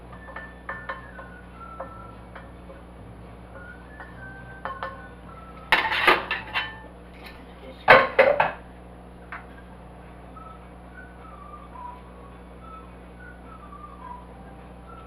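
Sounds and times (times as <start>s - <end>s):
pot and utensils clattering: 0.1s - 2.8s, 3.6s - 8.6s.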